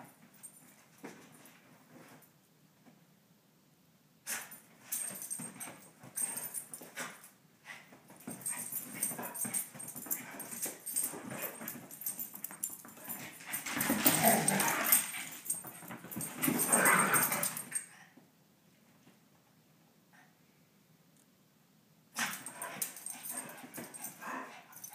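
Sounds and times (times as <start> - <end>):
dogs playing: 4.3 - 18.0, 22.2 - 24.9.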